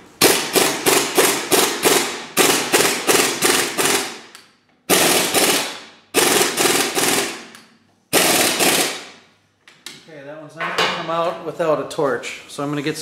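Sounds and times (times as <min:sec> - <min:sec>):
pneumatic impact wrench hammering: 0:00.0 - 0:09.3.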